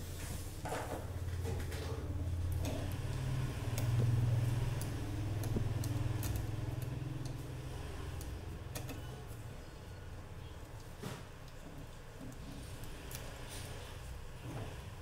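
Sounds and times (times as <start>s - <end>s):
metal tweezers clicking: 4.8s - 7.5s.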